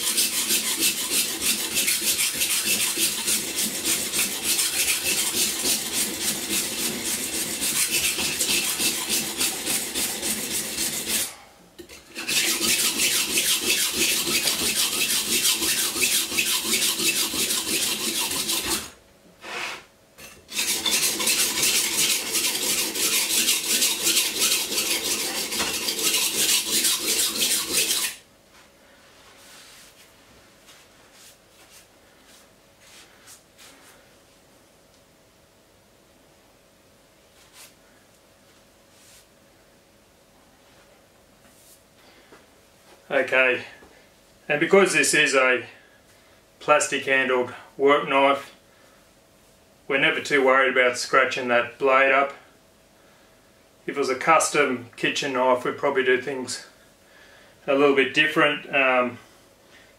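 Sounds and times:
knife rasping on sharpening stone: 0.0s - 11.3s, 12.1s - 18.9s, 20.5s - 28.2s.

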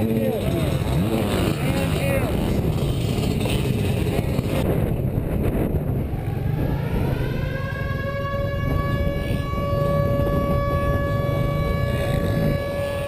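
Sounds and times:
dirt bike engines idling: 0.0s - 5.4s
steady rising whine: 0.0s - 13.0s.

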